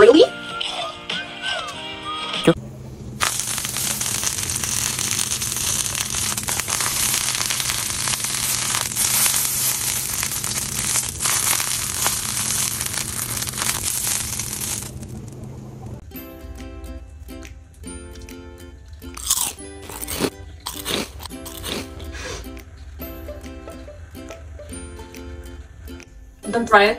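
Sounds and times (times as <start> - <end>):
music: 0.0 - 2.6, 16.0 - 26.9
roses sizzling in frying pan: 3.0 - 15.4, 19.2 - 22.2.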